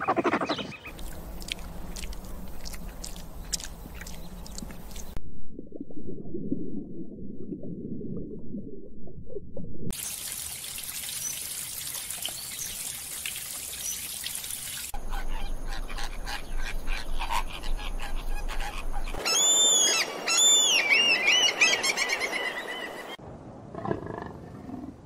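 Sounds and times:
water running over rocks: 0.9 - 5.2, 9.9 - 15.0.

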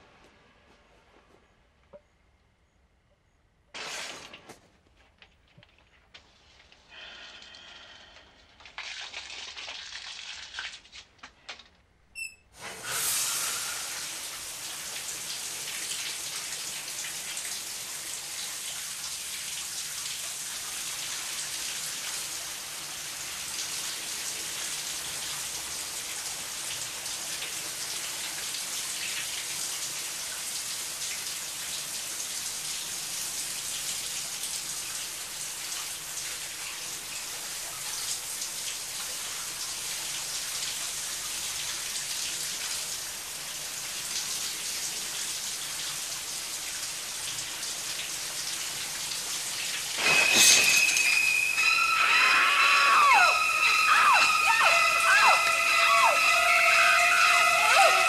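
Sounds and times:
shower water hissing: 12.6 - 58.0.

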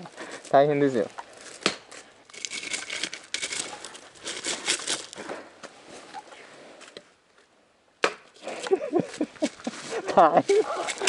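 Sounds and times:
footsteps crunching on gravel: 0.1 - 5.3.

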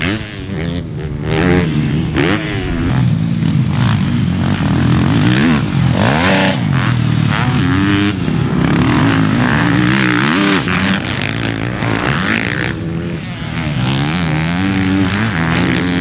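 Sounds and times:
motocross bike engines revving: 0.0 - 16.0.

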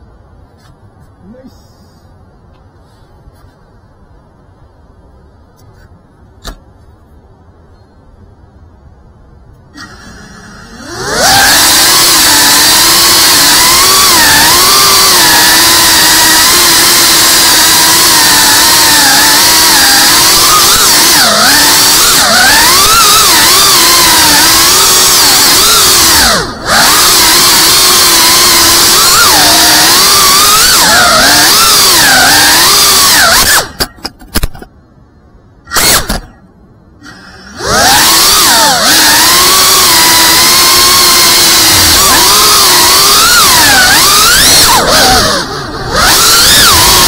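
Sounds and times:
drone motors whining: 9.6 - 34.6, 35.6 - 36.4, 37.0 - 47.0.

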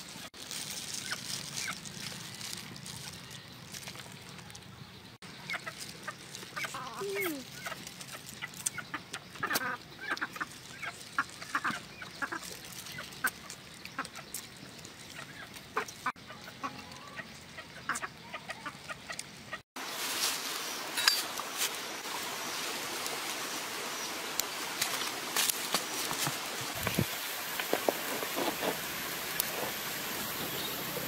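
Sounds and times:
chickens clucking: 5.3 - 19.6.

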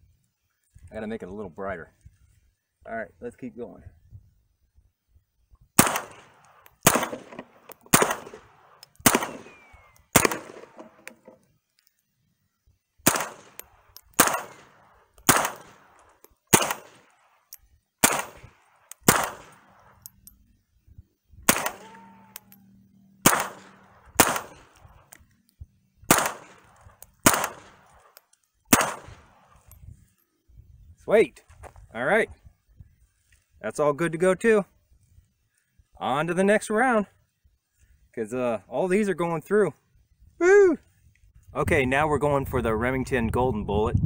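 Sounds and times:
rifle shots: 5.8 - 11.4, 13.0 - 17.4, 18.0 - 20.1, 21.4 - 22.0, 23.2 - 25.0, 26.0 - 29.7.

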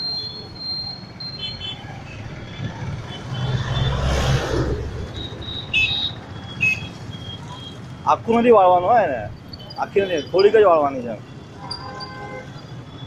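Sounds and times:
short high-pitched beeps: 0.0 - 1.8, 5.1 - 7.8
passing vehicle rumble: 2.2 - 8.0.

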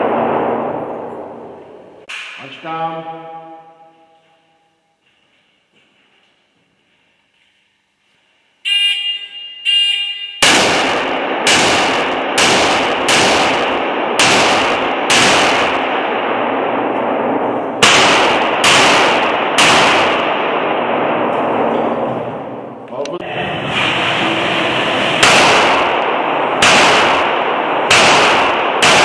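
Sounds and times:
pistol shots echoing indoors: 0.0 - 5.2, 8.7 - 22.8, 25.2 - 29.0
short electronic beeps: 8.6 - 10.4.

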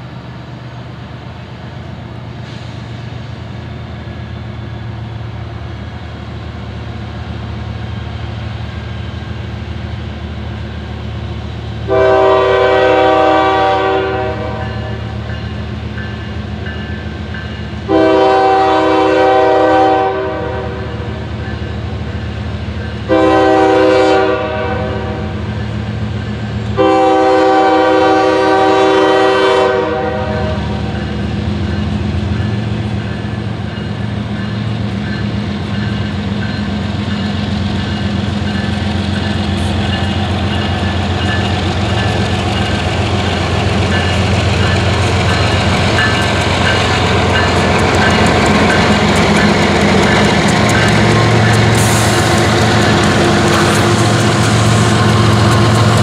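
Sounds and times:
locomotive air horn blasts: 11.9 - 15.0, 17.9 - 21.0, 23.1 - 25.4, 26.8 - 30.9.

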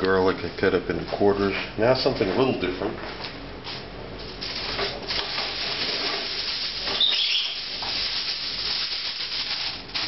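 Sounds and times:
aluminium foil crumpling: 4.3 - 10.0
brief high squeak: 7.0 - 7.6.

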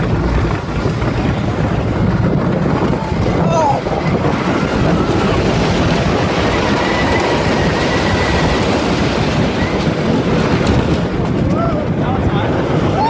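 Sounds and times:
roller coaster rumbling and clattering: 0.0 - 13.0
high wheel squeal: 3.2 - 10.4.

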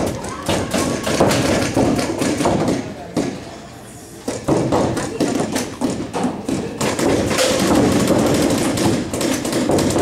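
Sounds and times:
paintball markers firing: 4.3 - 10.0.

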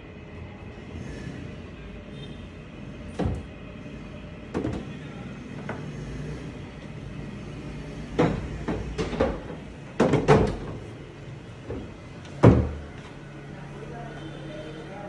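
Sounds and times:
panels clacking and knocking: 8.1 - 11.0, 11.6 - 13.0.

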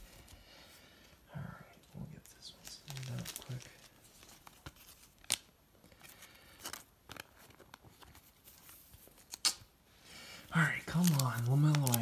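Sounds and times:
card stock clicks and snaps: 11.0 - 12.0.

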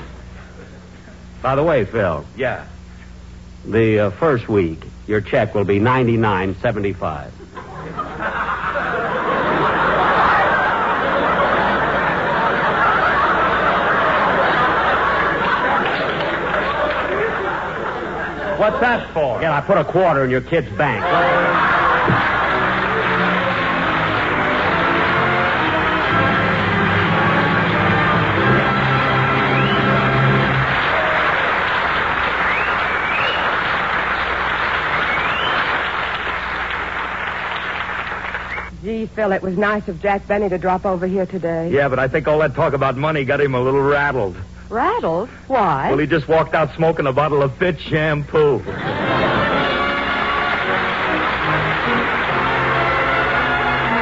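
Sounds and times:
studio audience laughing: 7.4 - 35.5, 48.6 - 54.0
rising whistles: 29.3 - 31.5, 32.2 - 34.0, 34.6 - 36.5, 38.2 - 38.7.

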